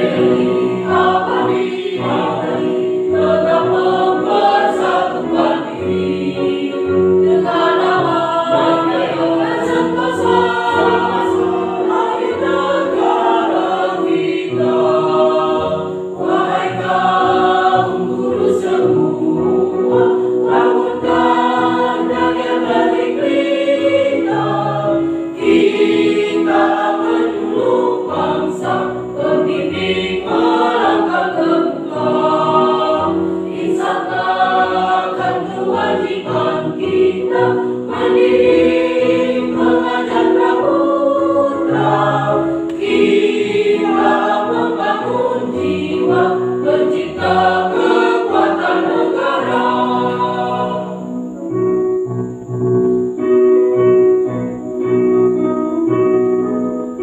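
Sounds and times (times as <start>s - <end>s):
mixed choir singing: 0.0s - 51.7s
keyboard playing: 0.0s - 57.0s.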